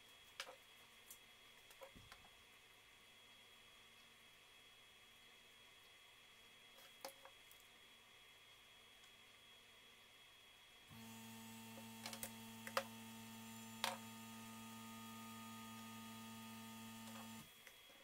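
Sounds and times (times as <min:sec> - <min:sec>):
low electrical hum: 0:00.0 - 0:18.0.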